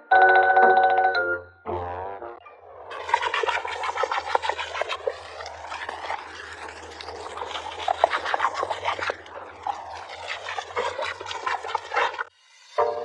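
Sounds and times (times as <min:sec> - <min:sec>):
water spattering: 0:02.9 - 0:12.3
hose water spray hissing: 0:02.9 - 0:13.0.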